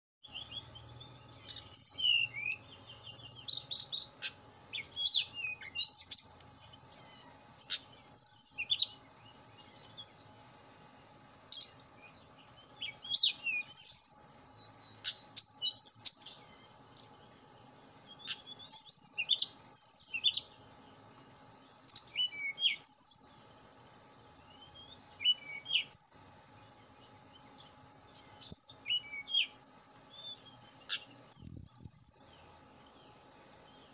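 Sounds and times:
bird singing whistles and twitters: 0:00.2 - 0:10.1, 0:11.5 - 0:16.6, 0:18.0 - 0:20.5, 0:21.8 - 0:23.3, 0:24.5 - 0:26.2, 0:27.4 - 0:32.3.

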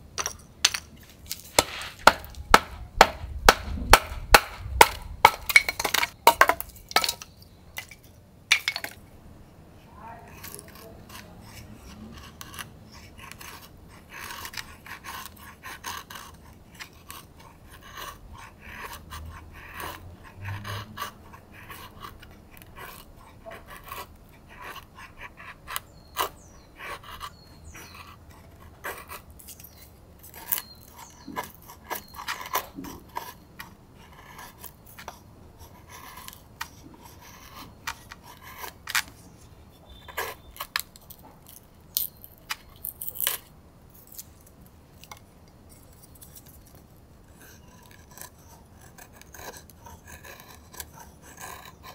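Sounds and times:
knife shaving wood: 0:01.0 - 0:07.3, 0:09.8 - 0:44.4, 0:45.0 - 0:51.9
knife batoned through wood: 0:01.0 - 0:08.9.

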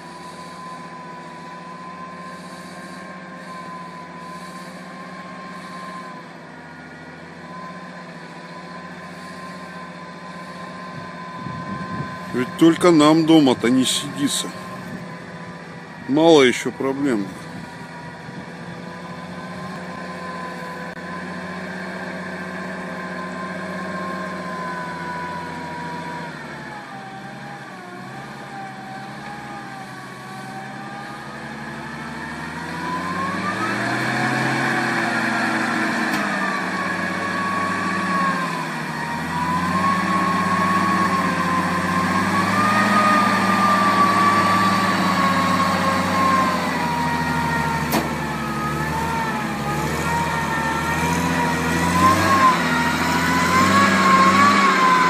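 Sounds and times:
truck engine under load: 0:00.0 - 0:55.0.

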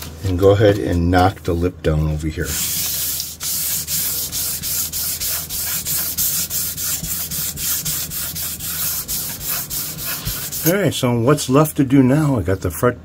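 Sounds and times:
sandpaper rubbing on wood: 0:02.4 - 0:10.8.

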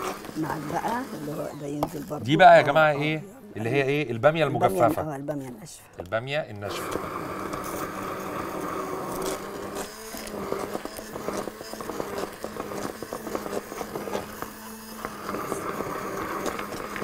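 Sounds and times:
utensil scraping in pot: 0:00.0 - 0:02.9, 0:06.7 - 0:17.0.

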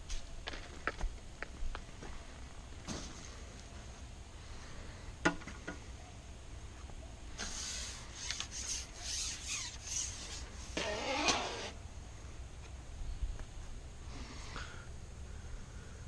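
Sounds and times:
fishing gear rubbing and scraping: 0:07.5 - 0:11.8.

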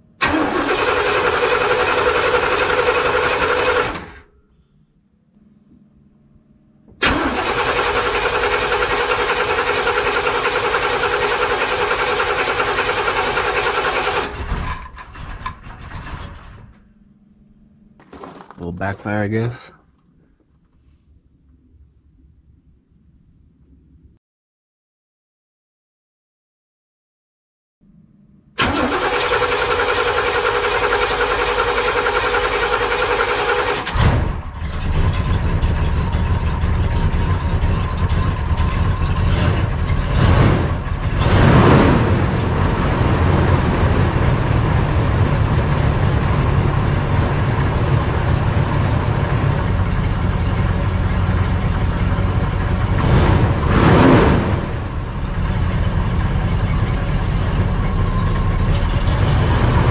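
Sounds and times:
truck engine running: 0:00.1 - 0:04.6, 0:05.4 - 0:19.5, 0:28.6 - 0:59.9.

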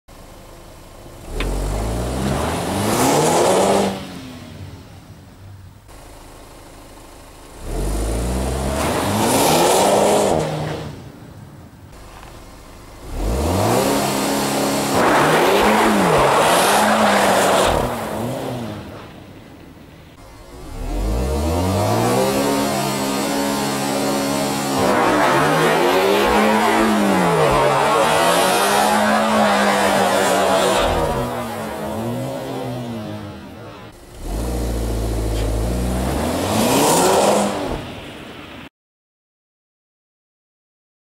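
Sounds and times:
car engine idling: 0:00.1 - 0:02.2, 0:04.6 - 0:08.5, 0:11.1 - 0:13.3, 0:19.0 - 0:24.7, 0:30.4 - 0:36.1
car engine revving: 0:01.0 - 0:05.1, 0:07.4 - 0:11.0, 0:12.0 - 0:19.2, 0:20.1 - 0:38.0.

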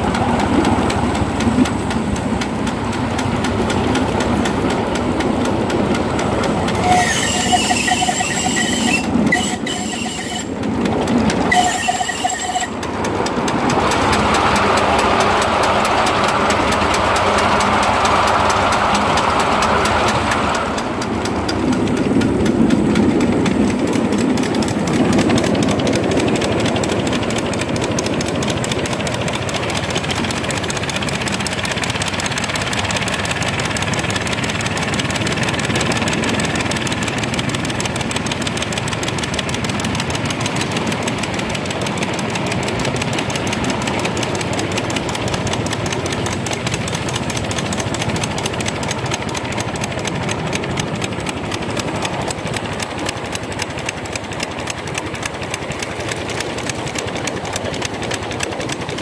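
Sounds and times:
steam locomotive exhaust beats: 0:00.0 - 0:59.0
wheels on rails: 0:00.0 - 0:59.0
short high tones: 0:06.8 - 0:10.6, 0:11.5 - 0:12.8.

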